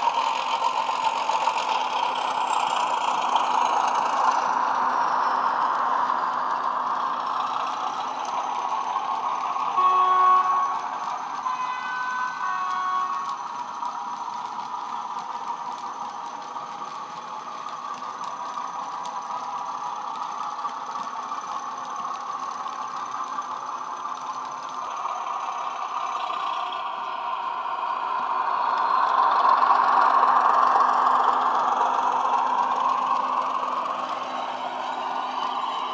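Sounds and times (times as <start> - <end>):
model locomotive diesel engine sound: 0.0 - 35.9
two-note horn: 9.8 - 10.9, 11.5 - 13.3.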